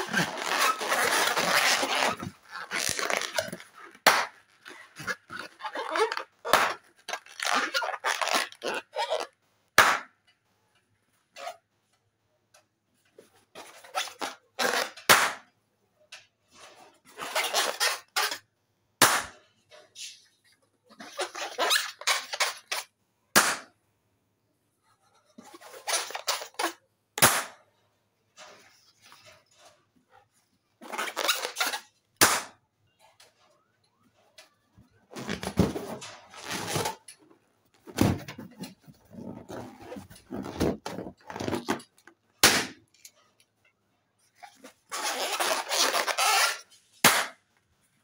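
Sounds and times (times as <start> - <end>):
rubber balloons squeaking: 0.0 - 9.4, 13.6 - 15.0, 17.1 - 18.4, 20.9 - 22.9, 25.4 - 26.8, 30.8 - 32.0, 35.1 - 37.1, 37.7 - 42.1, 44.3 - 46.8
balloons popping: 0.0 - 10.1, 25.8 - 27.6, 37.8 - 42.8, 44.9 - 47.4.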